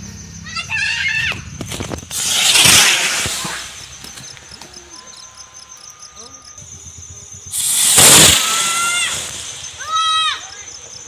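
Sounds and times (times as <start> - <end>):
crickets chirping: 0.0 - 11.0
firework hissing: 0.7 - 11.0.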